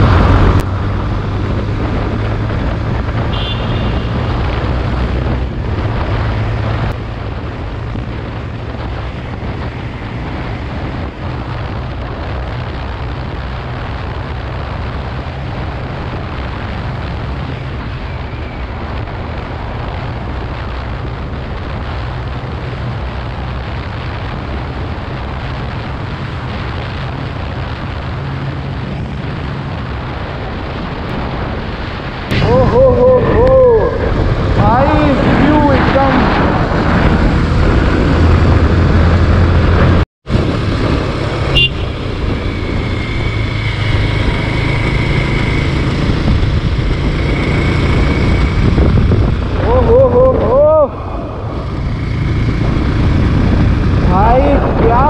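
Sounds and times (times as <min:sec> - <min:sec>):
wind rushing over microphone: 0:00.0 - 0:55.0
motorcycle engine running: 0:36.9 - 0:54.6.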